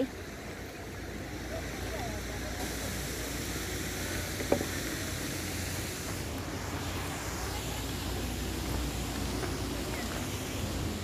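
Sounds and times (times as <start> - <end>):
wind rumble and hiss: 0.0 - 11.0.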